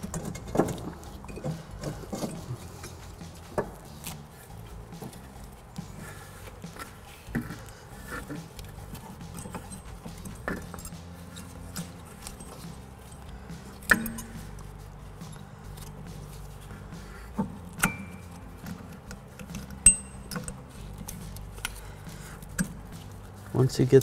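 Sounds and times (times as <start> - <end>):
metal brake parts clicking: 6.8 - 14.7, 17.4 - 21.8
sharp metal knocks: 13.8 - 14.4.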